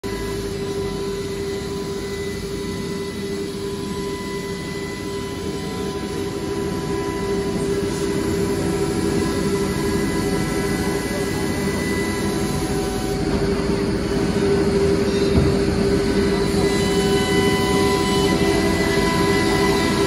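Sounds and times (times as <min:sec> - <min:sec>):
wood router spindle whine: 0:00.0 - 0:20.0.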